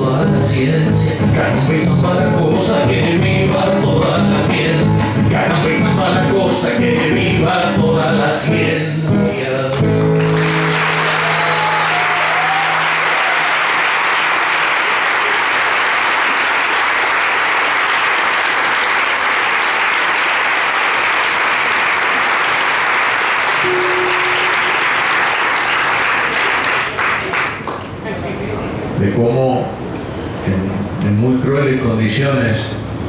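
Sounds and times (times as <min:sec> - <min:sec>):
audience applauding: 0:10.0 - 0:27.9
guitar notes plucked: 0:23.6 - 0:24.6
nylon-string guitar chord ringing: 0:23.6 - 0:24.7.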